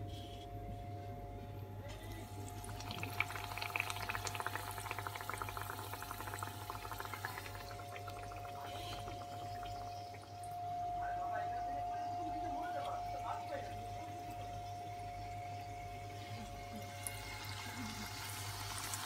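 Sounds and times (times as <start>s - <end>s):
steady hum: 0.0s - 19.0s
food frying in hot oil: 2.2s - 10.6s, 13.2s - 19.0s.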